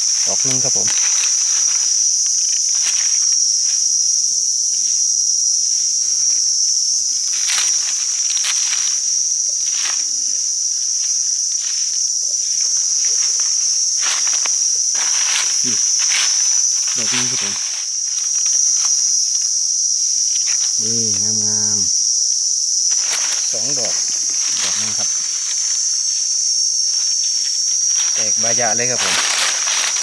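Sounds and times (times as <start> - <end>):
shrill insect chorus: 0.0 - 30.0
rustling leaf litter: 0.2 - 2.1, 12.4 - 19.2, 22.9 - 30.0.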